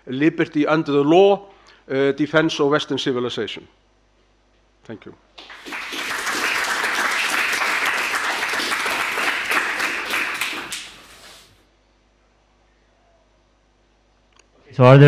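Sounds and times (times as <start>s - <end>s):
audience applauding: 5.4s - 11.4s.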